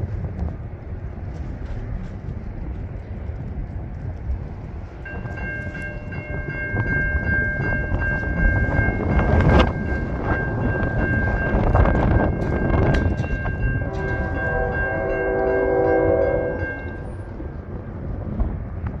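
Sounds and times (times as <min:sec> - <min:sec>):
low train rumble: 0:00.0 - 0:19.0
wind on microphone: 0:00.0 - 0:19.0
locomotive air horn: 0:13.8 - 0:17.2.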